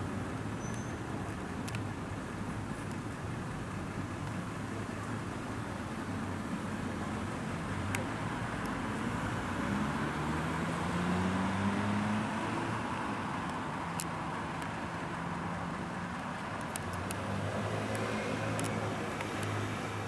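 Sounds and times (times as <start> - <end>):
sharp clicks: 17.9 - 19.6.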